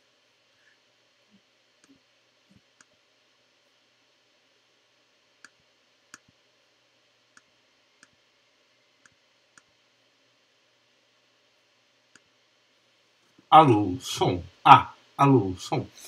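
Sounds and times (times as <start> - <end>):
computer mouse clicks: 9.0 - 9.7.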